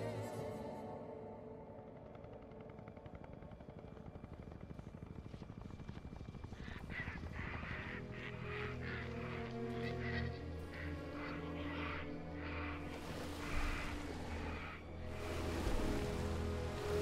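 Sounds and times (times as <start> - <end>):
low film score: 0.0 - 17.0
flock of creatures calling: 6.8 - 15.0.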